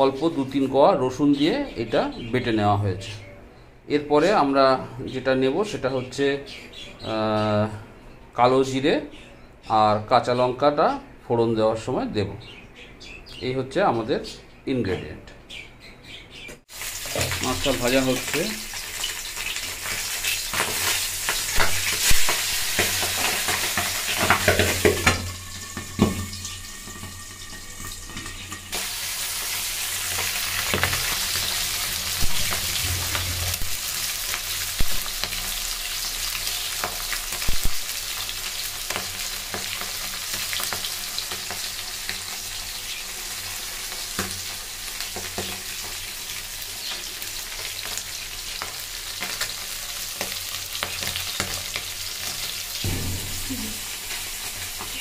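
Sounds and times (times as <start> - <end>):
fish frying in oil: 16.7 - 55.0
metal spatula knocking on pan: 52.8 - 54.6.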